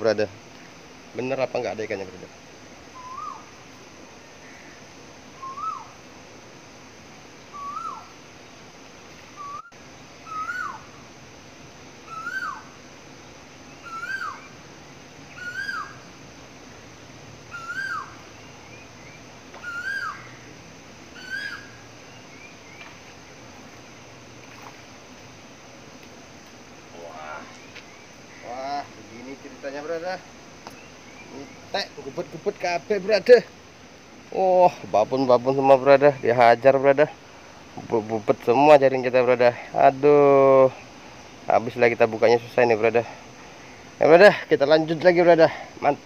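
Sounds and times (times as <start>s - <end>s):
bird whistling call: 3.0s - 3.5s, 5.4s - 6.0s, 7.5s - 8.1s, 9.4s - 10.9s, 12.0s - 12.7s, 13.8s - 14.5s, 15.3s - 16.0s, 17.5s - 20.4s, 21.2s - 22.9s.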